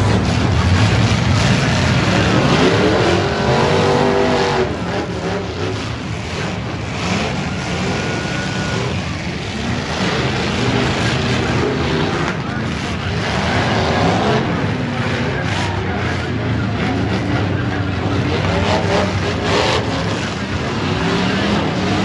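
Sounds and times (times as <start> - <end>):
car engines revving: 0.0 - 22.0.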